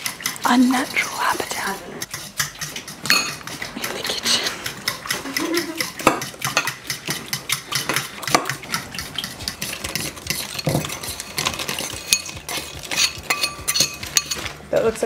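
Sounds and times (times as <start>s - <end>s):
spoon scraping a bowl: 0.0s - 5.2s, 6.0s - 14.6s.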